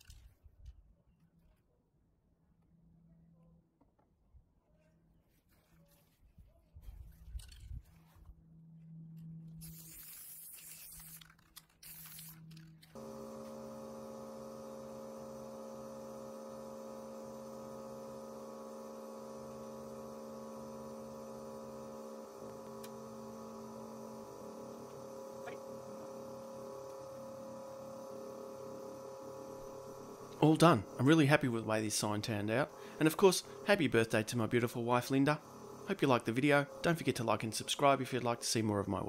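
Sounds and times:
rustling and scraping: 0:05.2 - 0:13.0
steady electrical hum: 0:08.7 - 0:39.0.

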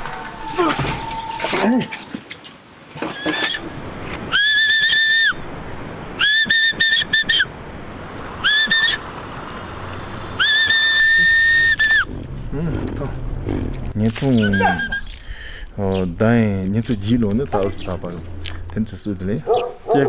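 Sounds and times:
man whistling: 0:04.3 - 0:05.4, 0:06.2 - 0:07.5, 0:08.4 - 0:09.0, 0:10.4 - 0:12.1, 0:14.5 - 0:15.1.

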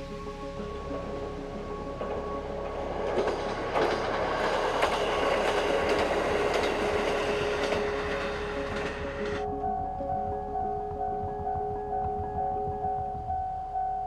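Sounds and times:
steady rushing noise: 0:00.9 - 0:13.7
wheels clattering over rail joints: 0:01.9 - 0:09.5.

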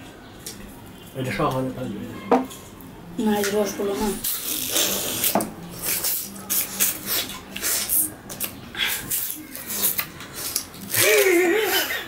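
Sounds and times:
sugar cane crunching and tearing: 0:04.2 - 0:11.7.

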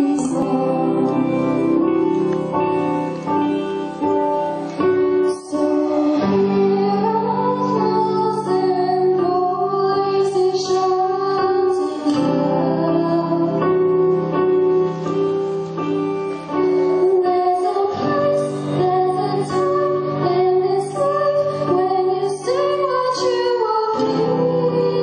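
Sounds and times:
teenagers singing pop ballad: 0:00.0 - 0:02.1, 0:05.3 - 0:13.9, 0:17.0 - 0:25.0
guitar: 0:00.0 - 0:25.0
piano: 0:00.0 - 0:25.0.

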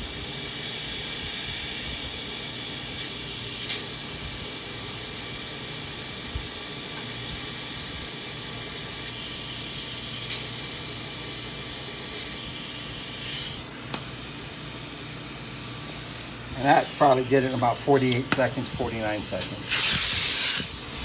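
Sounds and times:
compressed air hissing: 0:13.0 - 0:21.0
short sharp bursts of hiss: 0:19.4 - 0:21.0.

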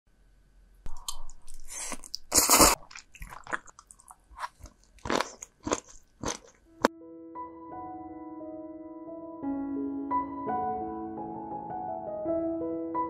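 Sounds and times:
person chewing crunchy food: 0:00.9 - 0:06.9.

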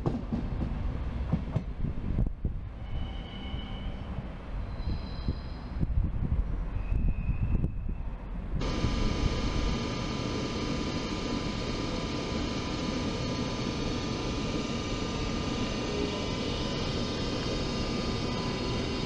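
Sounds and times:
electric locomotive whine and rumble: 0:00.0 - 0:19.0.

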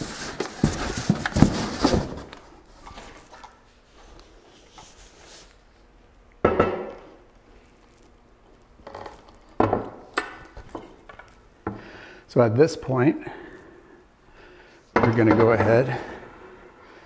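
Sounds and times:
cardboard box rustling and knocking: 0:00.0 - 0:02.3.

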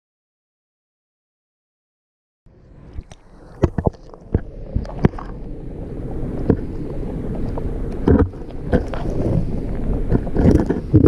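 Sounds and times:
muffled underwater water rumble: 0:02.5 - 0:11.0.

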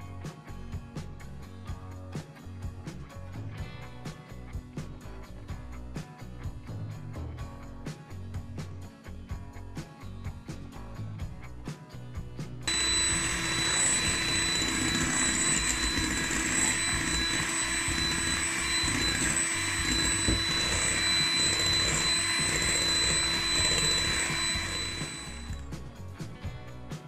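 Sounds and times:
electric hand mixer whining: 0:12.7 - 0:25.8.

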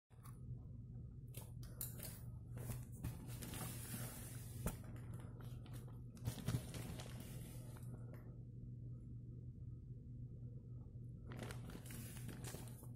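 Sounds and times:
steady low hum: 0:00.1 - 0:12.9
plastic wrapping crinkling: 0:03.2 - 0:08.2, 0:11.2 - 0:12.9.

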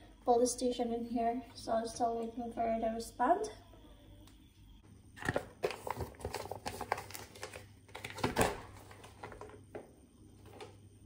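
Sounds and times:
plastic packet crinkling: 0:05.2 - 0:09.6.

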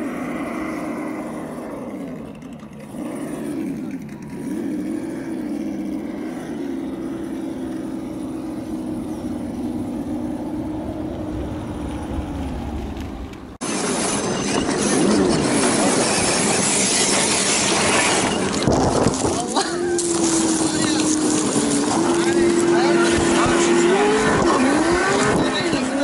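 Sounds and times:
electric motor and gears whining: 0:00.0 - 0:26.0
even rushing noise: 0:07.8 - 0:19.3.

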